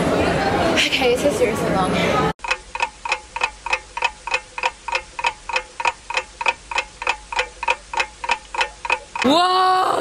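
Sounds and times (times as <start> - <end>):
clock ticking: 2.4 - 9.5.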